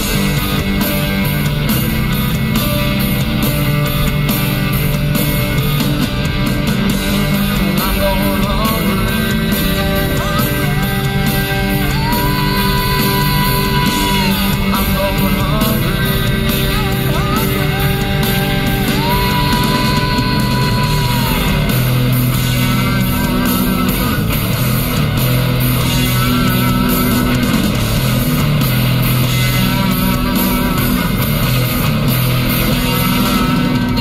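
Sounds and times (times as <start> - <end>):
electric guitar: 0.0 - 34.0
rock song: 0.0 - 34.0
man singing: 6.8 - 21.9, 22.5 - 24.4.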